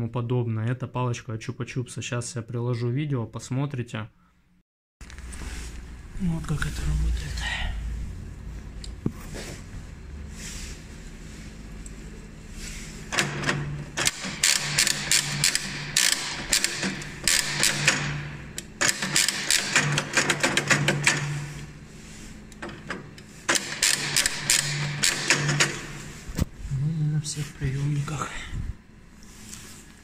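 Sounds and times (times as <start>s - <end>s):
ratchet clicking: 14.0s - 21.3s, 23.5s - 25.8s.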